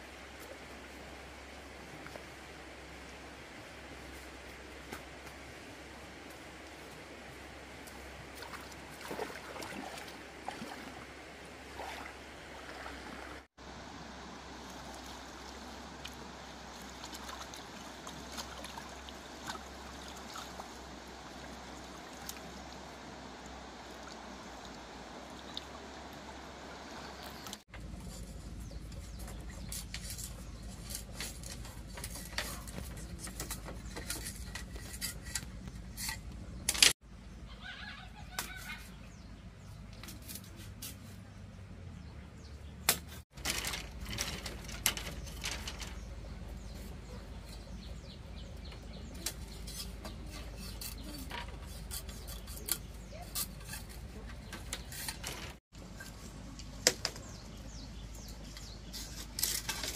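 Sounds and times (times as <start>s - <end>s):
knife scraping bamboo: 27.8s - 37.0s, 40.0s - 41.2s, 49.2s - 55.6s, 58.6s - 59.9s.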